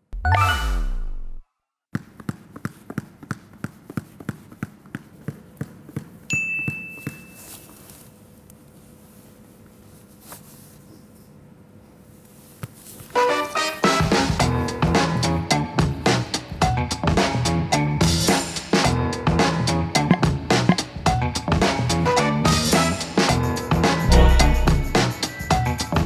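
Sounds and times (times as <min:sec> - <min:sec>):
phone notification chime: 0:00.2 - 0:00.9, 0:24.1 - 0:25.1
ball bouncing on hard floor: 0:01.9 - 0:07.3
music with drums: 0:13.8 - 0:26.0.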